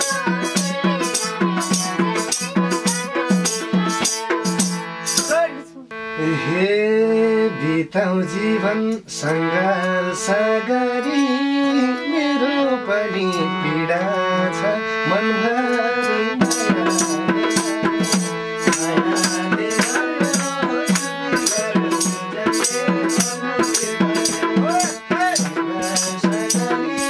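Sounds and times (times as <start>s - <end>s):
hand drum: 0.0s - 5.3s, 16.4s - 27.0s
harmonium melody: 0.0s - 27.0s
hand claps: 19.8s - 21.1s.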